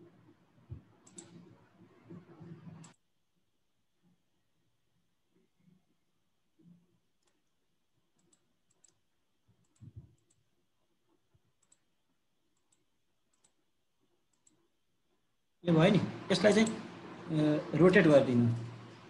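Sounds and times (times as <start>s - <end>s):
computer mouse clicks: 0.7s - 3.0s, 7.2s - 10.5s, 11.4s - 11.9s, 12.5s - 14.7s.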